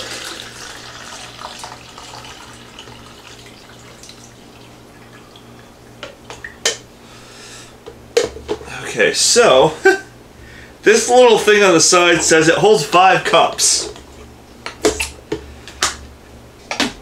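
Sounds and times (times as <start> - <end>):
liquid pouring into reservoir: 0.0 - 6.5.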